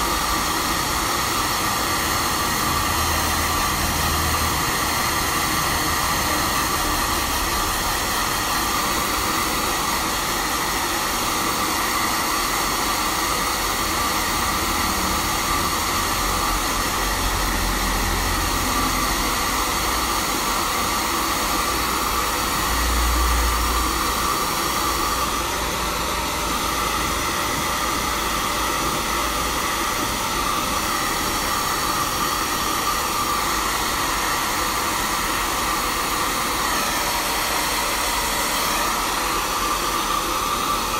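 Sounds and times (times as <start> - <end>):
hair dryer blowing: 0.0 - 40.9.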